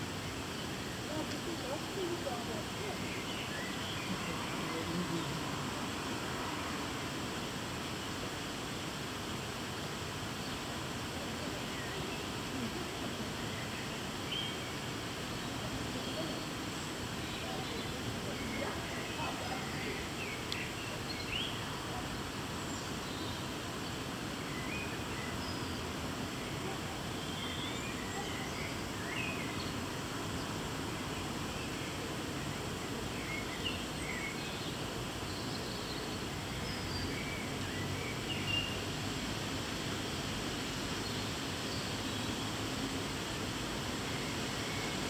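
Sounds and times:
steady background noise: 0.0 - 45.0
small birds chirping: 0.2 - 5.6, 9.4 - 45.0.

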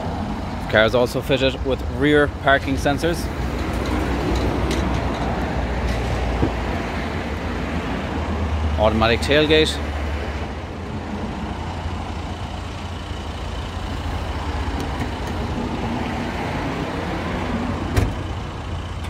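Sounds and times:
tailgate latching thunk: 17.9 - 18.3.

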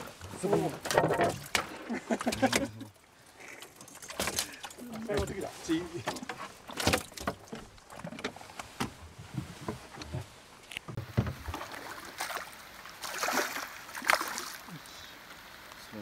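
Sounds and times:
knocks and thumps on boat floor: 10.9 - 11.5.

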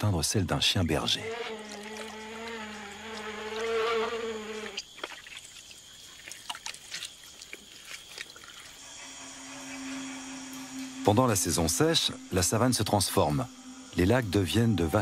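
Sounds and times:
flying insect buzzing: 0.8 - 6.3, 7.0 - 15.0
animals splashing through mud: 1.6 - 8.9.

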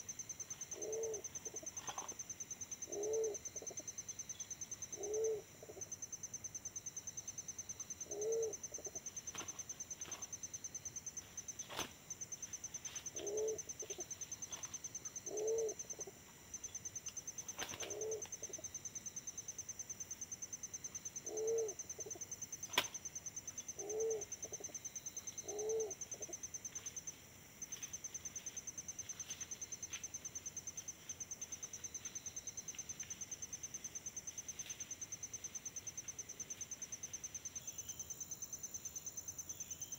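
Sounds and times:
insect trilling: 0.0 - 6.1, 12.6 - 38.5
pigeons cooing: 0.7 - 2.0, 2.9 - 3.8, 5.0 - 5.8, 8.1 - 9.0, 13.1 - 14.1, 15.2 - 16.2, 17.6 - 18.7, 21.3 - 22.2, 23.8 - 24.8, 25.4 - 26.4.

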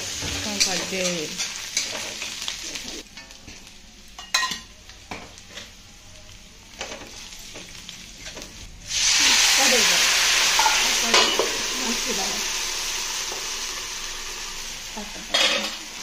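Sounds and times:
onions frying in oil: 0.0 - 16.0.

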